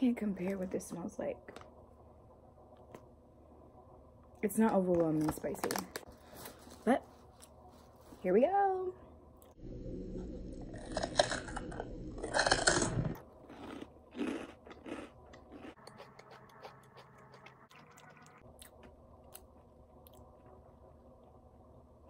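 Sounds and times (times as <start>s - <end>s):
person crunching and chewing snack: 10.6s - 20.2s.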